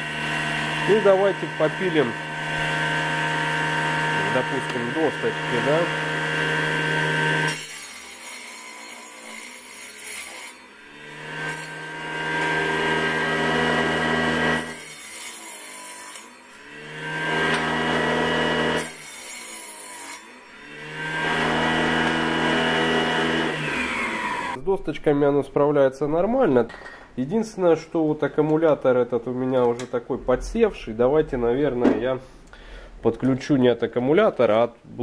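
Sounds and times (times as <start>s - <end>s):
saw blade rasping through wood: 0.0s - 24.6s
table saw motor whining: 0.0s - 24.6s.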